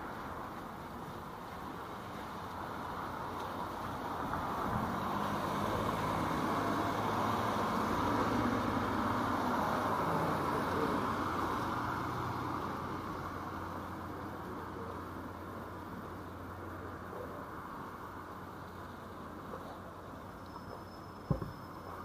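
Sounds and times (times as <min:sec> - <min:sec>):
car driving past on wet road: 0:02.1 - 0:14.3.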